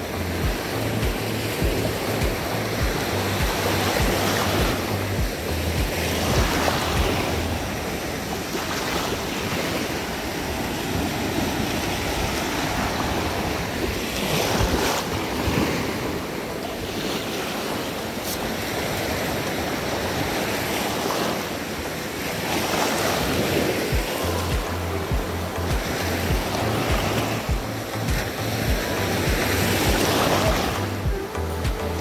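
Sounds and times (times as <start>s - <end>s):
wind rumbling on microphone: 0.0s - 17.3s
surf breaking on beach: 0.0s - 31.3s.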